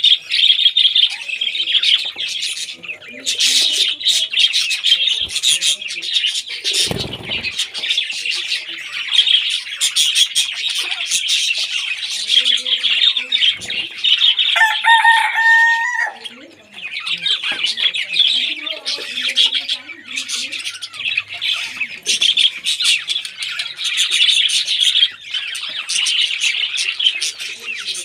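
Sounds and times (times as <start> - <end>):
budgerigars chattering: 0.0 - 28.0
long held bird call: 14.4 - 16.3.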